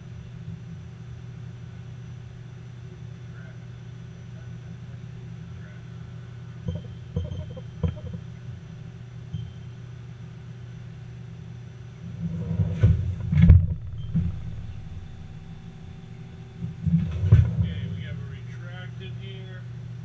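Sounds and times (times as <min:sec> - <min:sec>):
low machine hum: 0:00.0 - 0:20.0
door knocks: 0:06.7 - 0:08.2.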